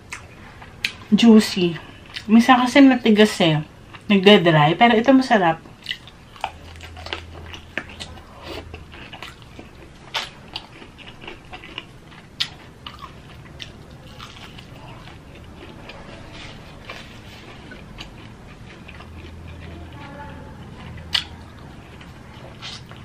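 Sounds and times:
chewing crispy fried chicken: 0.0s - 2.4s, 5.6s - 23.0s.

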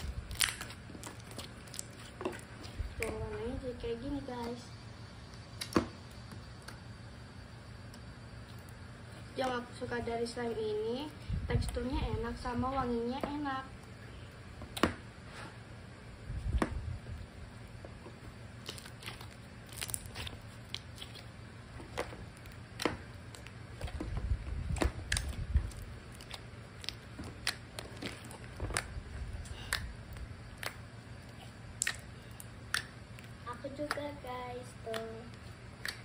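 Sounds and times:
slime squishing with clicks and pops: 0.0s - 3.2s, 5.2s - 6.9s, 17.8s - 36.0s.

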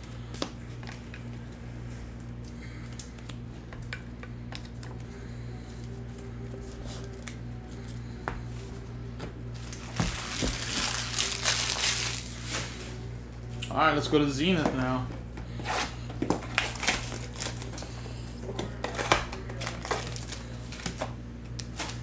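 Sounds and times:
low hum: 0.0s - 22.0s
rustling and crinkling: 9.5s - 13.0s.

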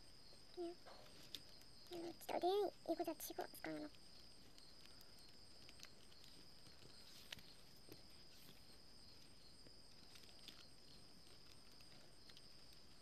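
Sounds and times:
faint steady high tone: 0.0s - 13.0s.

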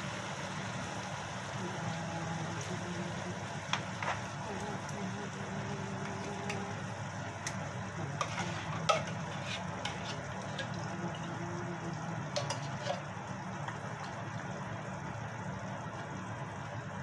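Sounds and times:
light sizzling: 0.0s - 17.0s
stove humming: 0.0s - 17.0s
metal spoon scraping tin can: 8.2s - 10.6s.

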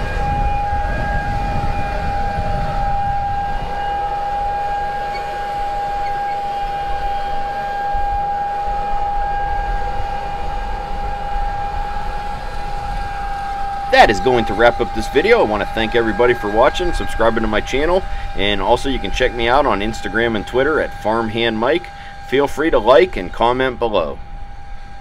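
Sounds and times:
drone propellers whining: 0.0s - 25.0s
wind rumble on microphone: 0.0s - 25.0s.

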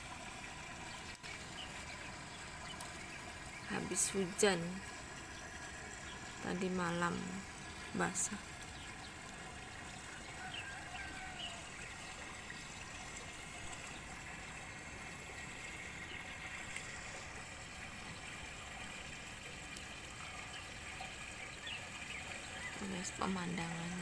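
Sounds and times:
small stream of running water: 0.0s - 24.0s.

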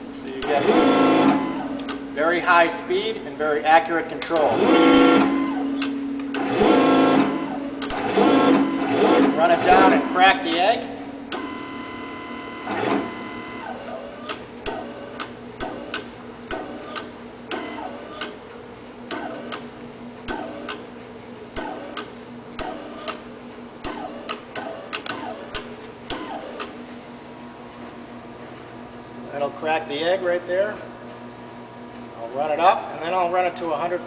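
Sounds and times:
motor and pump whine: 0.0s - 34.0s
steady hum: 0.0s - 34.0s
clicks with falling whine: 1.2s - 2.1s, 7.2s - 18.4s, 19.0s - 20.9s, 21.5s - 26.8s.

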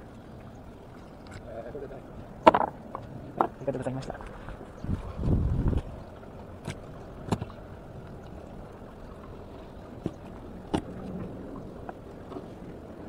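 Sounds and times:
sea waves: 0.0s - 13.0s
wind: 0.0s - 13.0s
clicks and knocks on wooden deck: 2.4s - 3.6s.

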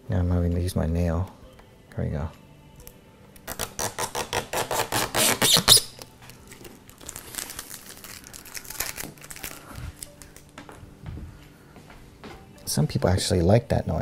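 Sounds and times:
plastic film crackling: 3.4s - 10.6s.

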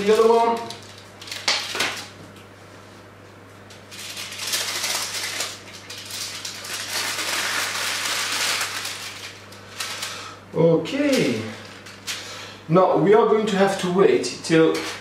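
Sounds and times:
baking paper rustling and crinkling: 0.0s - 2.3s, 3.7s - 12.3s, 14.6s - 15.0s.

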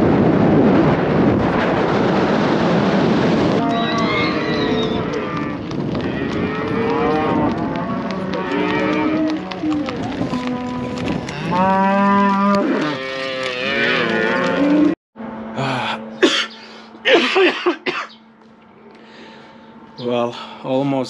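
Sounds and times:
animals calling: 3.6s - 14.9s.

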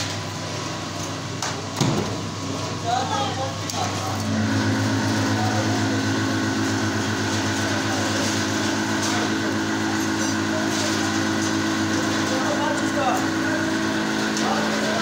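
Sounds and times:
motor humming: 3.6s - 15.0s.

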